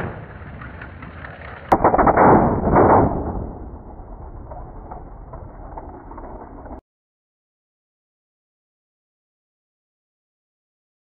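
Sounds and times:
engine backfire bang: 1.7s - 6.8s.

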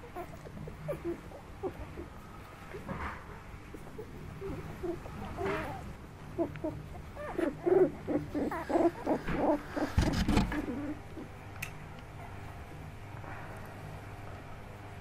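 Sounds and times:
puppies whimpering: 0.0s - 11.6s
muffled bump on camera: 9.9s - 10.7s.

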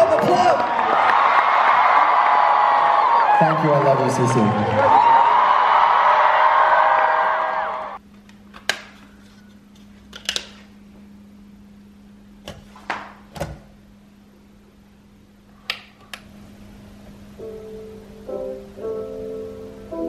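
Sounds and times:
live concert: 0.0s - 8.0s
steady low hum: 8.0s - 20.0s.

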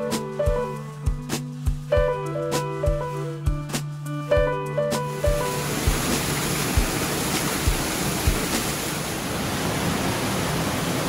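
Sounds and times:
waterfall splashing onto rocks: 5.1s - 11.0s
low thumps: 5.3s - 8.5s.

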